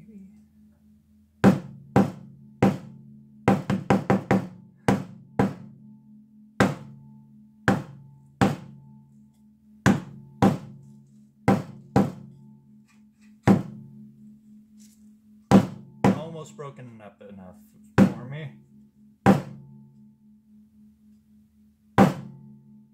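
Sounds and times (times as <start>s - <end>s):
hammer knocking on canvas panel: 1.4s - 2.9s, 3.5s - 5.6s, 6.6s - 6.9s, 7.7s - 8.7s, 9.9s - 10.7s, 11.5s - 12.3s, 13.4s - 13.8s, 15.5s - 16.2s, 18.0s - 18.2s, 19.3s - 19.6s, 22.0s - 22.3s.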